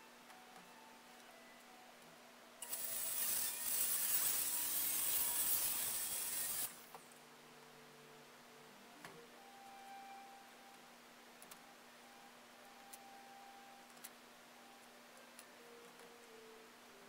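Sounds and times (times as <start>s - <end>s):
circular saw cutting plywood: 2.6s - 6.8s.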